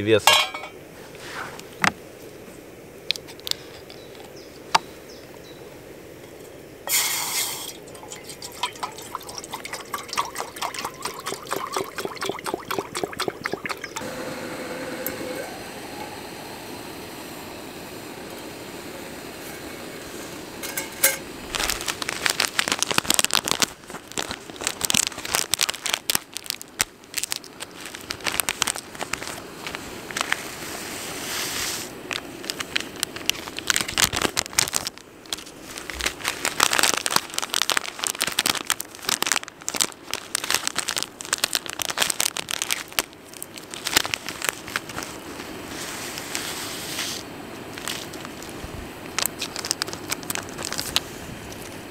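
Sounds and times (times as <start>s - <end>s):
steady hiss: 0.0s - 12.0s, 13.9s - 51.9s
packaging crinkling and rustling: 20.9s - 31.2s, 31.8s - 51.8s.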